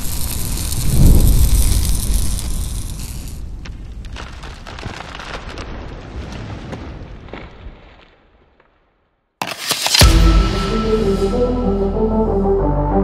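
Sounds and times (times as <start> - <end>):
spark-like crackling: 0.0 - 6.0
low rumble: 0.4 - 4.0.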